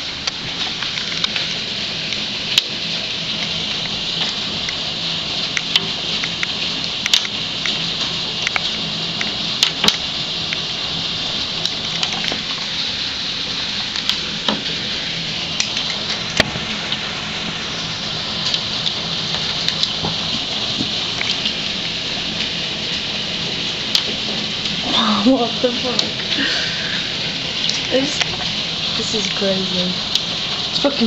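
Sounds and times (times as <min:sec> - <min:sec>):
hail hissing on pavement: 0:00.0 - 0:31.0
hailstone clicks: 0:05.4 - 0:10.6, 0:18.4 - 0:21.6.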